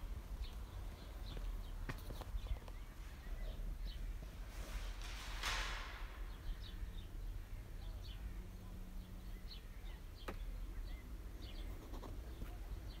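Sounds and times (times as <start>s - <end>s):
rustle: 3.8s - 6.8s.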